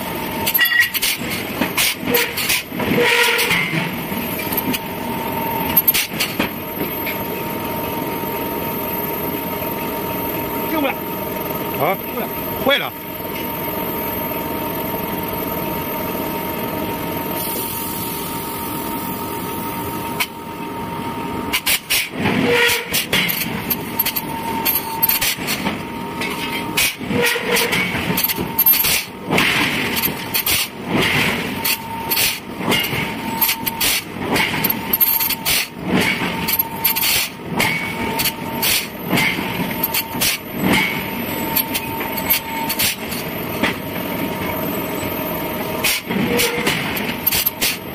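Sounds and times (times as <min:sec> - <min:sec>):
machinery humming: 0:00.0 - 0:47.9
metal blows and clanks: 0:21.5 - 0:43.8, 0:45.8 - 0:47.8.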